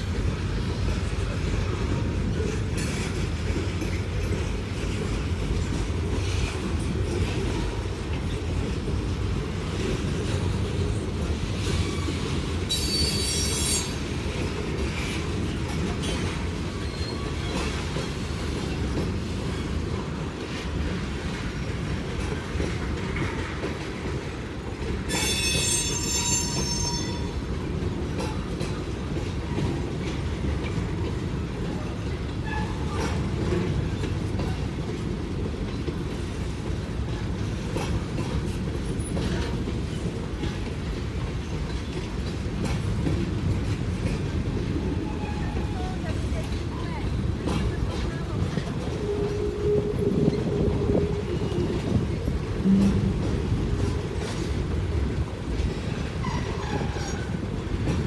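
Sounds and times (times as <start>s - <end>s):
train wheels rumbling on rail: 0.0s - 58.0s
high-pitched wheel squeal: 11.8s - 14.0s, 25.1s - 27.3s
clicks at rail joints: 35.6s - 44.7s.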